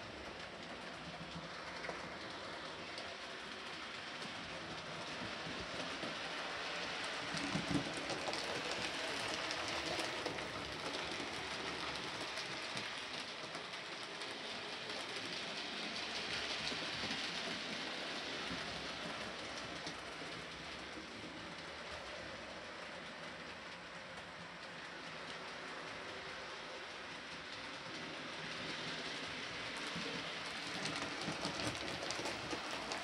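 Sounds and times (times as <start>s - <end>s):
wheels ticking over rail joints: 0.0s - 33.0s.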